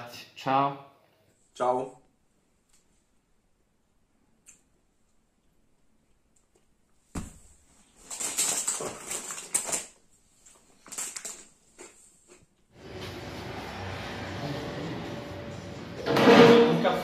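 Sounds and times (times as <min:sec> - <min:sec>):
snack bag crinkling: 0:08.0 - 0:10.0, 0:10.8 - 0:11.5.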